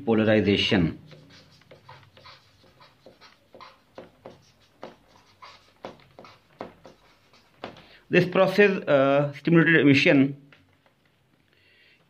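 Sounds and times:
marker scratching on paper: 0.4 - 8.6.

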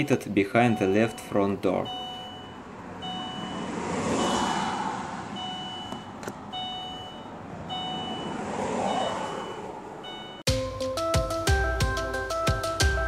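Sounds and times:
car door warning chime beeping: 0.0 - 4.6, 5.4 - 10.5
rushing noise: 3.4 - 5.5.

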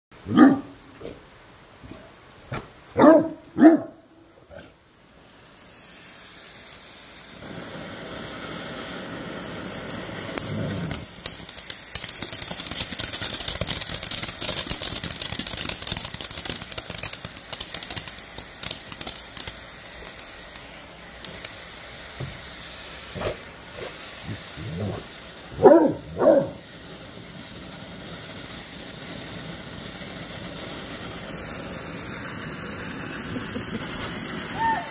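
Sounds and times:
firework fountain hissing and crackling: 0.1 - 34.9
dog barking: 0.3 - 1.2, 1.9 - 4.7, 25.6 - 26.6.

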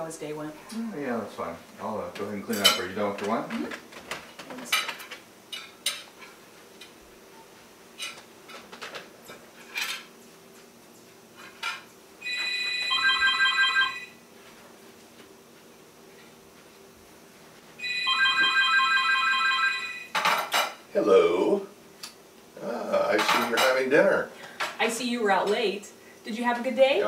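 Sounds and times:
plates and cutlery clinking: 2.3 - 3.4, 4.1 - 6.9, 8.0 - 10.1, 20.1 - 20.8, 23.1 - 23.9
telephone electronic ring: 12.2 - 14.2, 17.8 - 20.2.

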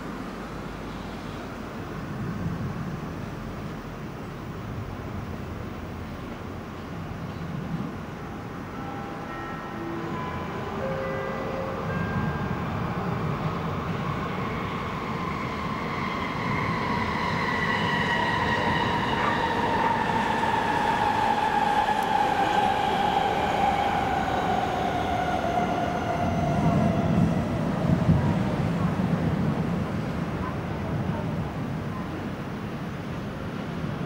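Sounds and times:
passing vehicle rumble and whine: 9.9 - 34.0.

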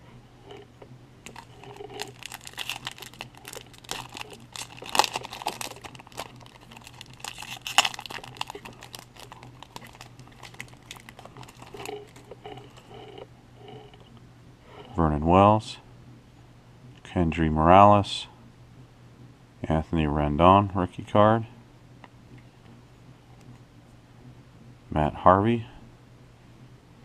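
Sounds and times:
foil wrapper tearing and crinkling: 1.2 - 12.8.

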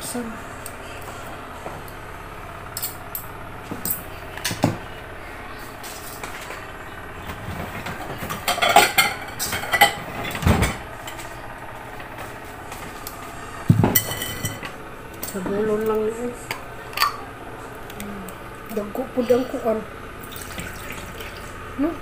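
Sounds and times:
electric fan hum: 0.0 - 22.0
dishes and utensils clinking: 7.8 - 11.3, 13.7 - 15.5, 16.9 - 17.3.

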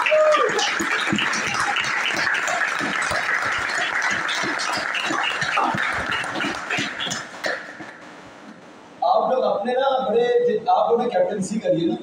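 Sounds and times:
people clapping: 0.0 - 8.0.

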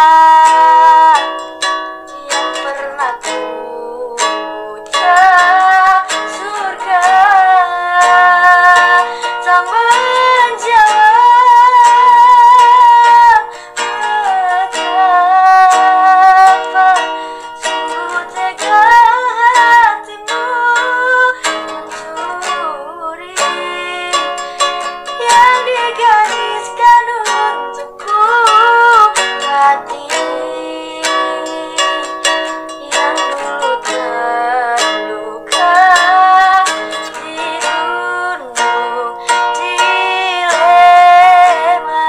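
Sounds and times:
woman singing slow song: 0.0 - 1.4, 2.1 - 42.0
plucked guitar: 0.0 - 42.0.

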